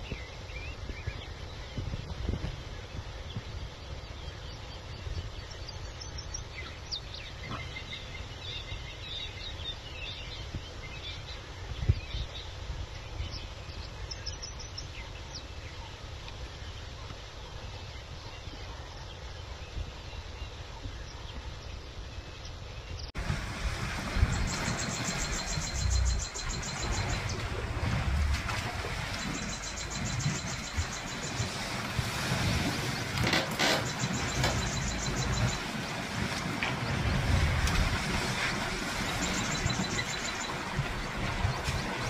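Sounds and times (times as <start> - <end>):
wild birds chirping: 3.8 - 12.5, 24.0 - 42.0
steady low rumble: 23.0 - 33.2, 33.9 - 42.0.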